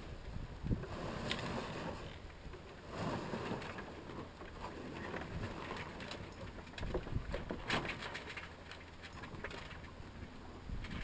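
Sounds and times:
wind buffeting microphone: 0:00.0 - 0:03.8, 0:06.7 - 0:07.7, 0:10.6 - 0:11.0
water washing along hull: 0:00.0 - 0:11.0.

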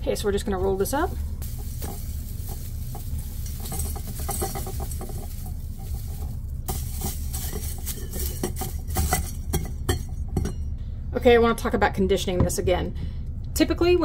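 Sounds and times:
dry cabbage crackling in metal funnel: 0:00.0 - 0:10.0
steady low hum: 0:00.0 - 0:14.0.

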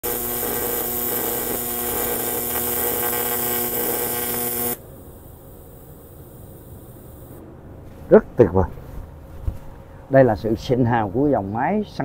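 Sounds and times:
welding arc tone and hiss: 0:00.0 - 0:07.4.

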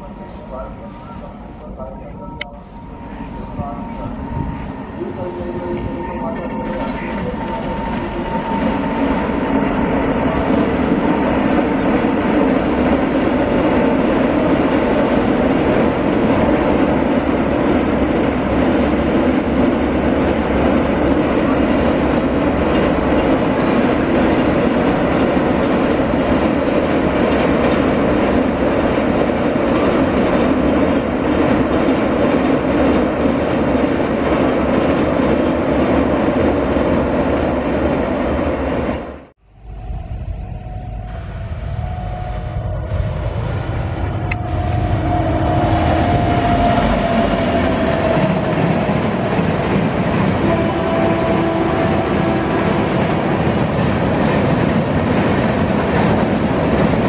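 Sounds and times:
train wheels rumbling on rails: 0:00.0 - 0:57.0.

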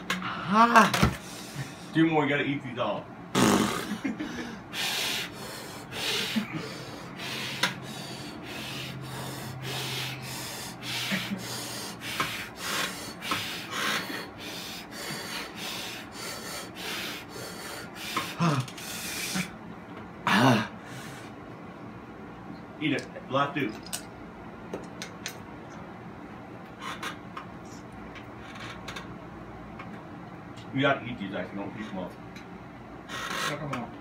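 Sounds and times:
person breathing hard: 0:00.2 - 0:01.9, 0:04.2 - 0:19.6, 0:20.3 - 0:21.4.

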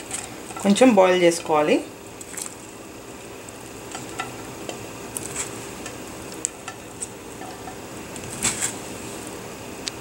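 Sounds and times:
steady hiss: 0:00.0 - 0:10.0.

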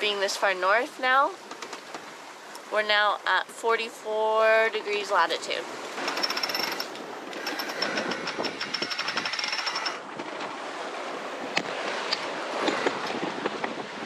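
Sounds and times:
fast mechanical clicking: 0:06.0 - 0:10.0.

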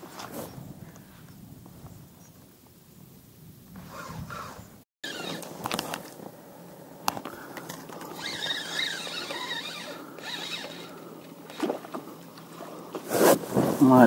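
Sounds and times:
reel clicks: 0:07.0 - 0:12.6
fishing reel rattling chatter: 0:07.9 - 0:11.7.

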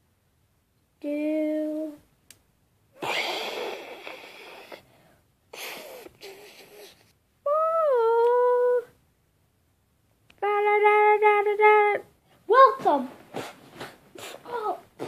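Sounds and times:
breathy hissing mouth whooshes: 0:03.0 - 0:04.9.

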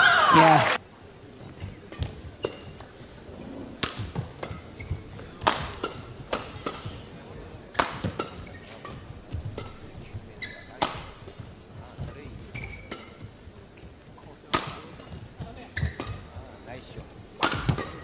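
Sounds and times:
shoes squeaking on court: 0:01.3 - 0:07.1, 0:07.9 - 0:16.6
rackets hitting shuttlecock: 0:03.8 - 0:07.0, 0:07.7 - 0:13.2, 0:14.5 - 0:16.3, 0:17.4 - 0:18.0.

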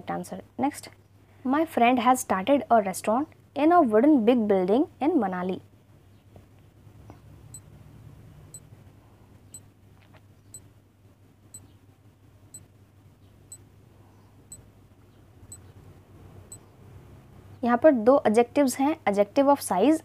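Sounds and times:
low steady hum: 0:00.0 - 0:20.0
faint clock-like ticking: 0:08.5 - 0:08.7.

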